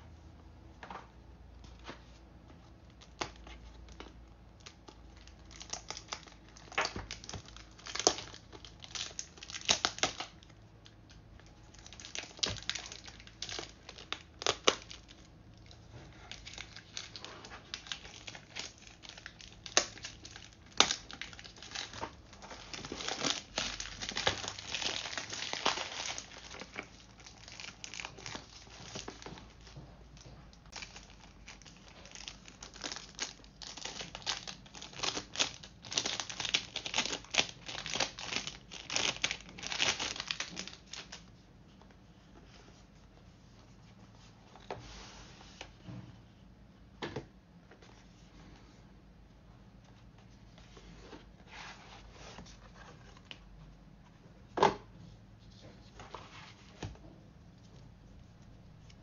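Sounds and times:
plastic wrap tearing and crinkling: 4.6s - 10.6s, 11.5s - 29.8s, 30.6s - 41.3s.

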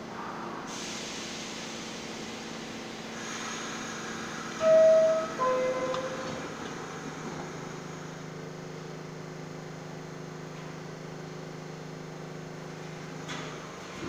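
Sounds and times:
subway train equipment humming: 0.0s - 14.0s.

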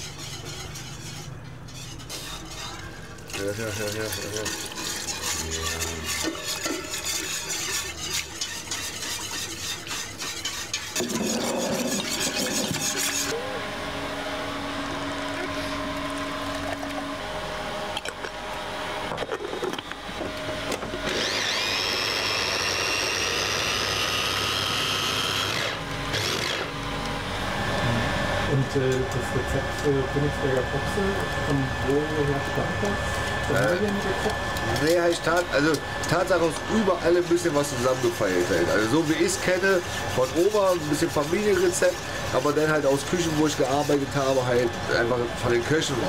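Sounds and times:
whisk scraping in steel pot: 0.0s - 13.4s, 32.9s - 46.0s
food processor motor whining: 15.0s - 28.2s.

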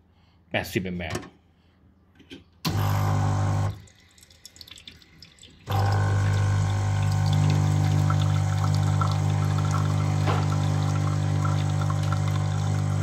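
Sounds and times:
espresso machine pump humming: 2.7s - 3.8s, 5.7s - 13.0s.

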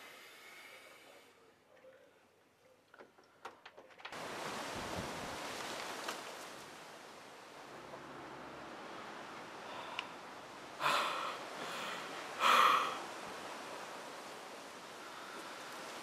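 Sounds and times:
wind noise on microphone: 4.3s - 5.7s.

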